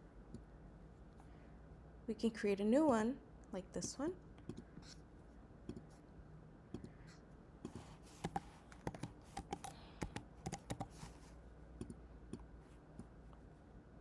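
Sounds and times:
computer keyboard typing: 0:08.2 - 0:11.0.

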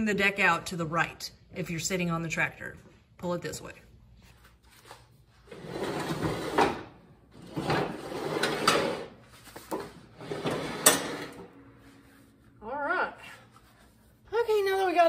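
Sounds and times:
mower deck scraping on concrete: 0:07.5 - 0:09.2.

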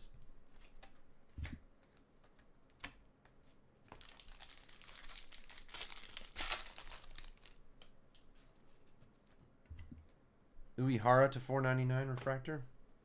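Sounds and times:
foil wrapper crinkling: 0:04.0 - 0:07.6.

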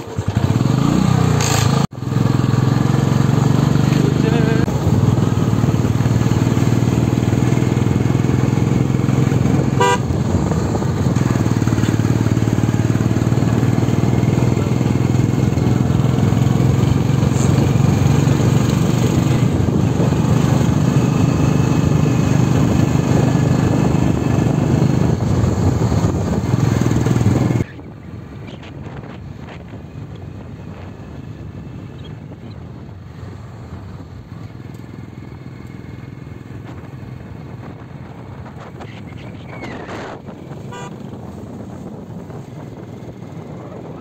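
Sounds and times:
vehicle engine running: 0:00.0 - 0:44.0
short horn toot: 0:09.7 - 0:10.2, 0:40.6 - 0:41.0.

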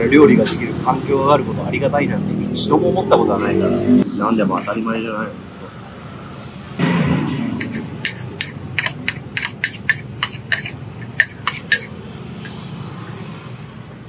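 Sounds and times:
metal spoon scraping plastic plate: 0:07.6 - 0:12.6.

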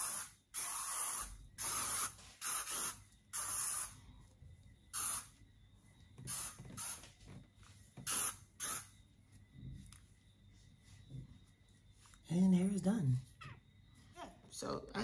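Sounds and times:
spray bottle spritzing: 0:00.0 - 0:04.0, 0:04.9 - 0:05.3, 0:06.3 - 0:07.0, 0:08.0 - 0:08.9.

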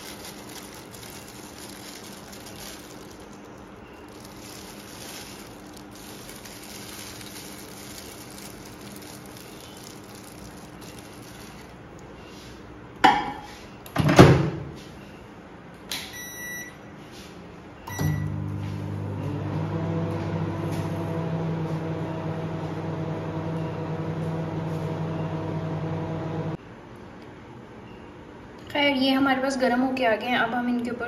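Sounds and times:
microwave oven humming: 0:15.8 - 0:17.0, 0:17.8 - 0:26.6
short keypad beeps: 0:16.1 - 0:16.8, 0:17.9 - 0:18.4.

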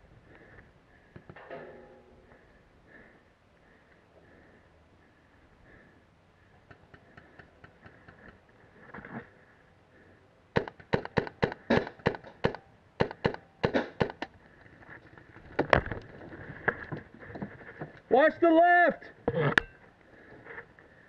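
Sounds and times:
paintball marker firing: 0:10.6 - 0:14.3.

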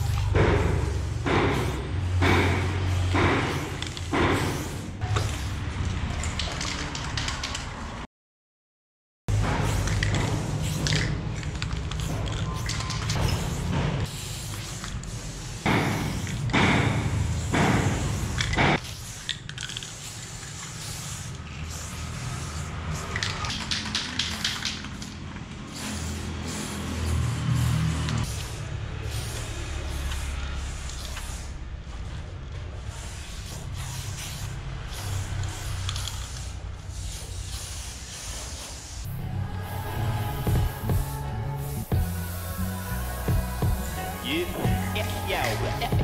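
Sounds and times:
spray paint can hissing: 0:00.0 - 0:08.0, 0:09.3 - 0:46.0
steady low rumble: 0:39.1 - 0:46.0.

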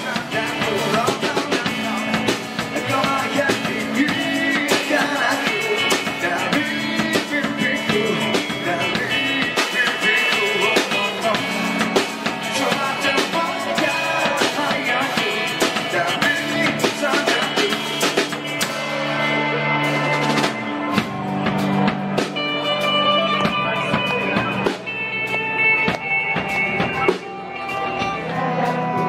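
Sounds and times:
person singing into a microphone: 0:00.0 - 0:18.6, 0:26.8 - 0:29.0
drum kit: 0:00.0 - 0:29.0
electric guitars: 0:00.0 - 0:29.0.

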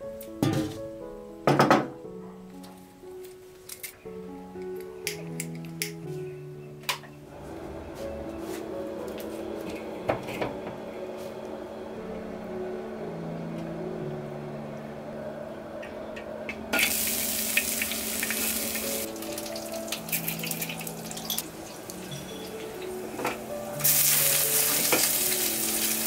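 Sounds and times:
soft background music: 0:00.0 - 0:26.0
food sizzling in a wok: 0:16.8 - 0:26.0.

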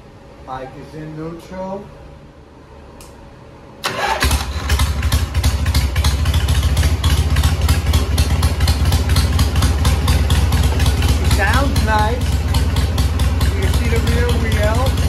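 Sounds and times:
motorcycle engine idling: 0:04.0 - 0:15.0.

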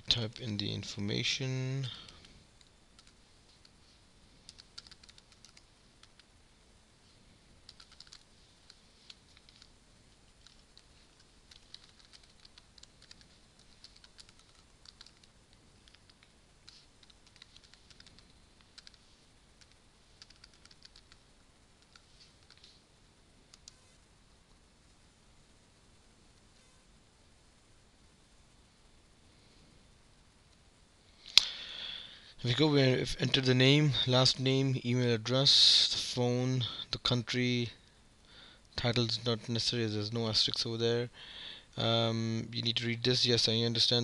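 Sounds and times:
keyboard typing: 0:02.0 - 0:03.2, 0:04.5 - 0:06.3, 0:07.6 - 0:09.7, 0:10.4 - 0:19.0, 0:19.6 - 0:21.2, 0:21.8 - 0:22.7.

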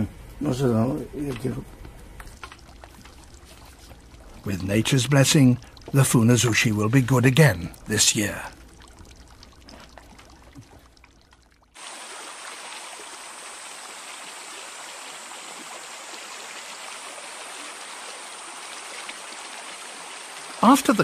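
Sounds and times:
water running in a channel: 0:01.2 - 0:21.0.

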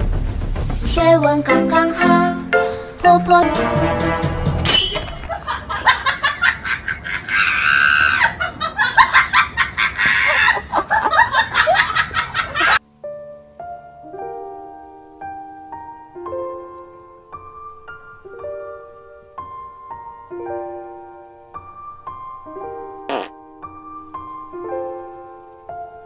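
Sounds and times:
soft slow piano notes: 0:12.8 - 0:26.0.

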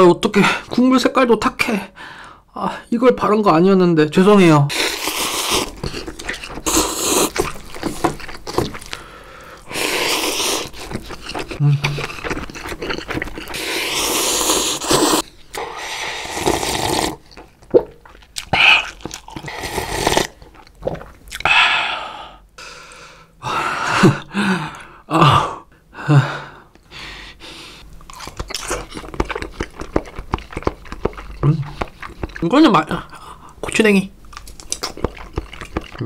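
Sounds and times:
slurping noodles: 0:04.7 - 0:17.5, 0:18.5 - 0:21.1
wet chewing: 0:04.7 - 0:21.5, 0:27.9 - 0:36.0.

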